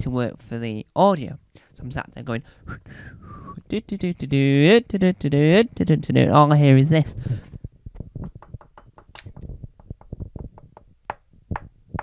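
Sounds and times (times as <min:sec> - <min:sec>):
fingers tapping on tabletop: 0:08.2 - 0:12.0.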